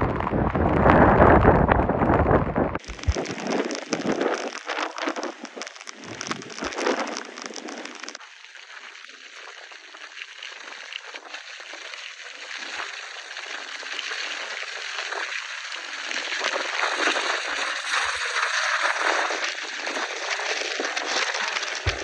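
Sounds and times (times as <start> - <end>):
wind and rain hissing: 0.0 - 8.2, 14.3 - 22.0.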